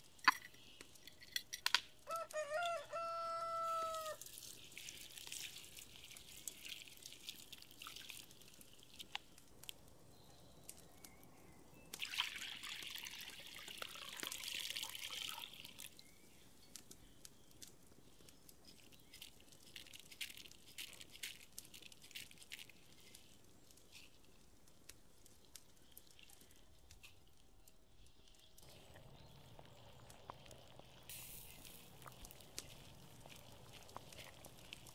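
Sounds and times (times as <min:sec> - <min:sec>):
water dripping and trickling: 0:03.5 - 0:34.9
running water: 0:04.0 - 0:09.2, 0:28.6 - 0:34.9.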